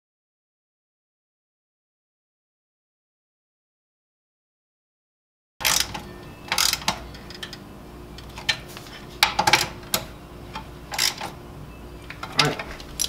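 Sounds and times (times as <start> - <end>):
low steady hum: 5.6 - 13.0
clicks and knocks of car parts: 8.2 - 11.4, 12.1 - 13.0.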